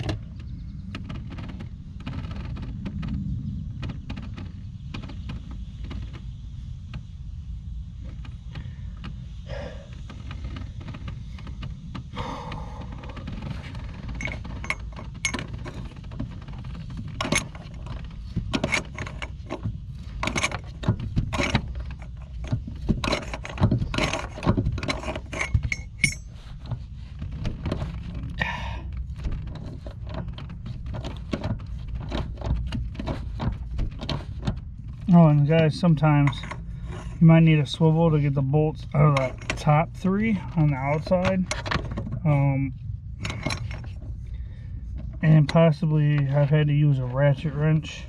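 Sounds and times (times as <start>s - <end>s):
steady low rumble: 0.0s - 48.0s
ratchet clicking and bolt clinking: 13.3s - 26.8s.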